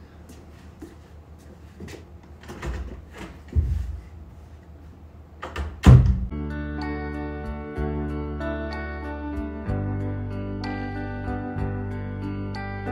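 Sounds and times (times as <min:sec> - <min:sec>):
footsteps: 0:00.2 - 0:04.6
door opening and shutting: 0:05.4 - 0:06.3.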